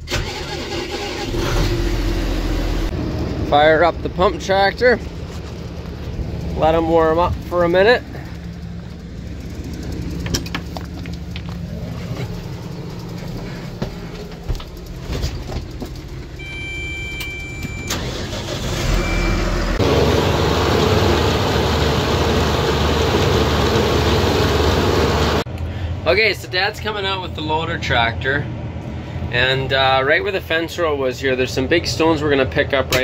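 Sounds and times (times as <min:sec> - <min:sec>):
loud engine and machinery noise: 0:01.3 - 0:26.0
diesel engine idling: 0:02.0 - 0:26.0
short electronic beeps: 0:16.4 - 0:18.0, 0:18.9 - 0:19.6.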